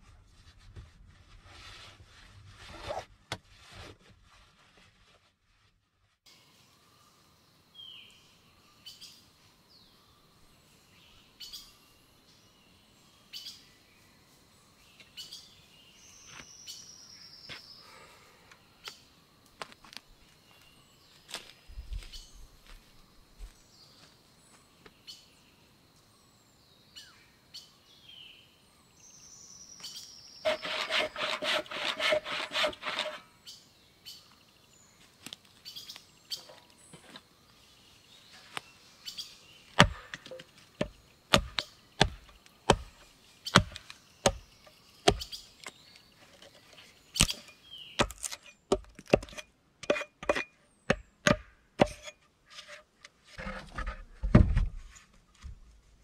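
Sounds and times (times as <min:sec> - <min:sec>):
rapid scraping strokes: 0:30.4 - 0:33.3
birds chirping: 0:35.6 - 0:49.4
sharp wooden knocks: 0:39.8 - 0:44.4, 0:45.1 - 0:45.3, 0:48.0 - 0:52.0.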